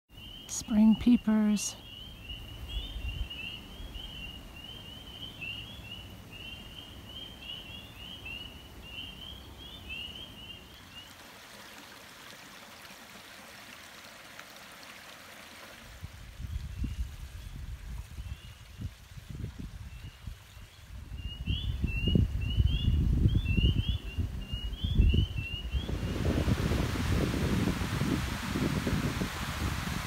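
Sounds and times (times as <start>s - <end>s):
frogs peeping: 0.1s - 11.2s, 21.2s - 26.4s
running water: 10.6s - 21.1s, 25.7s - 30.0s.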